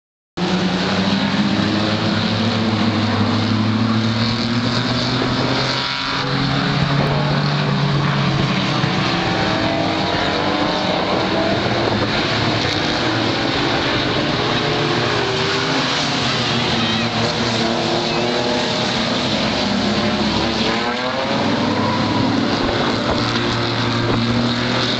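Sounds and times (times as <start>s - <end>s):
race car engines: 0.4s - 24.9s.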